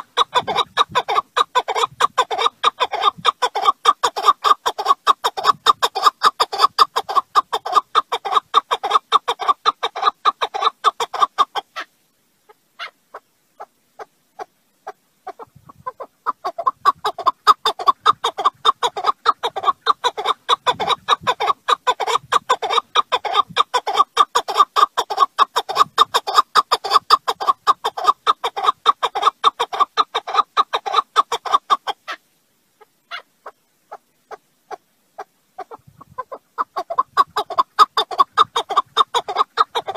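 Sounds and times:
partridge chuck calls: 0.0 - 11.9, 12.5 - 32.2, 32.8 - 39.9.

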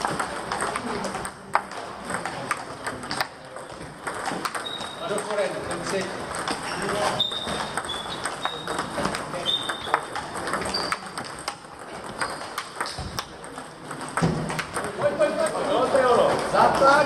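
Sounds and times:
table tennis balls clicking: 0.0 - 17.0
short high squeaks: 4.6 - 5.1, 6.6 - 8.8, 9.4 - 11.1.

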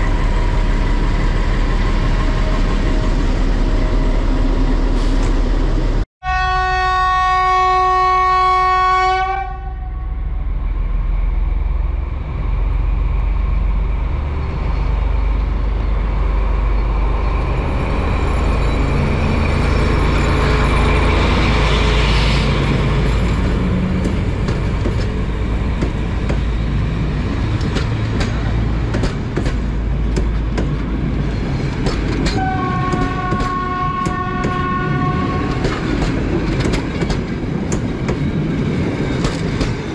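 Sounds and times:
train engine and wheel noise: 0.0 - 39.9
locomotive horn: 6.2 - 10.4, 32.3 - 35.7.

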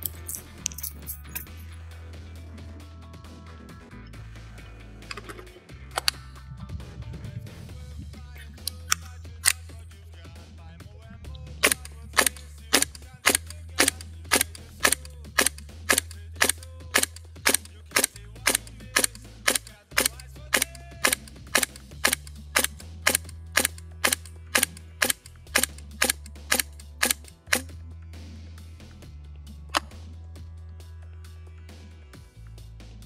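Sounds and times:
airsoft rifle shots: 11.6 - 27.7.

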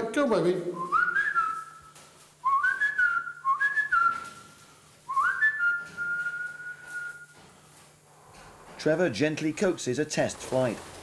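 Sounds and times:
person whistling: 0.8 - 7.3.

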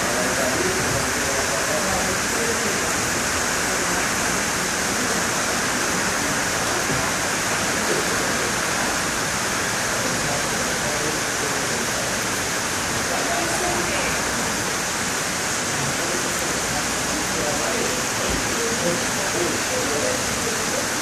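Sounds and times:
heavy rain on foliage: 0.0 - 21.0.

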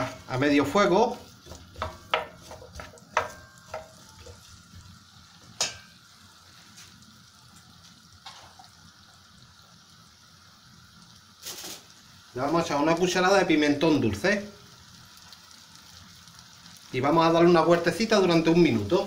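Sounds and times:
wooden spoon scraping a pan: 0.0 - 4.7
potatoes sizzling in oil: 0.0 - 19.0.

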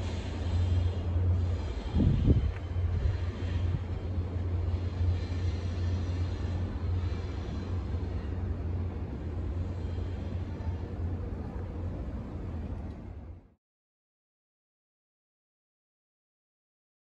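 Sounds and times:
diesel train rumbling: 0.0 - 13.6.

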